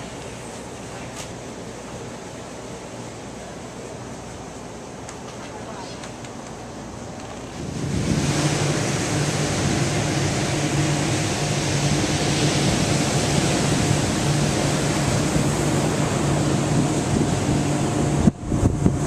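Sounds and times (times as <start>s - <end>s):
low mechanical hum: 0.0s - 19.0s
ocean surf breaking on beach: 7.4s - 19.0s.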